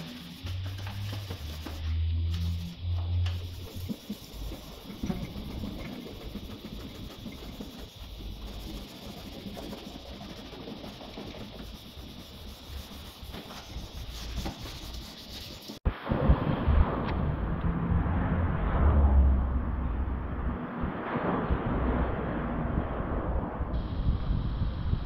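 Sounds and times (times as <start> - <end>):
sandpaper rubbing metal panel: 0.0 - 2.8, 3.4 - 15.8.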